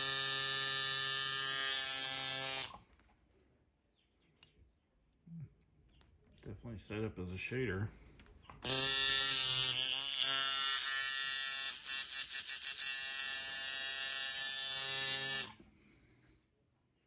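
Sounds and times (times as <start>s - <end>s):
tattoo machine buzzing: 0.0s - 2.8s, 8.6s - 15.6s.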